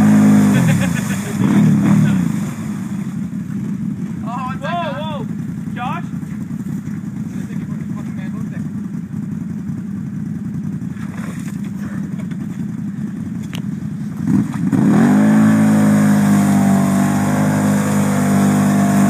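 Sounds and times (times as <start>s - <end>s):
quad engine revving: 0.0s - 8.7s, 10.6s - 19.0s
quad engine idling: 0.0s - 15.7s
wheels spinning in mud: 10.2s - 19.0s.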